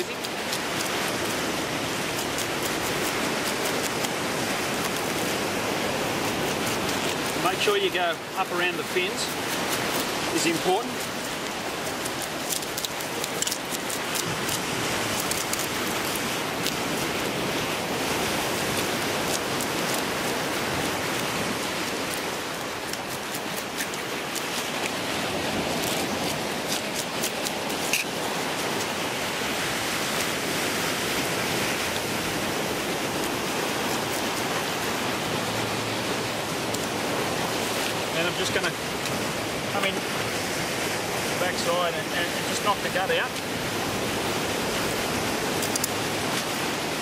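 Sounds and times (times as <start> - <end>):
ocean surf: 0.0 - 47.0
knife scraping fish scales: 22.0 - 25.0, 25.8 - 29.0.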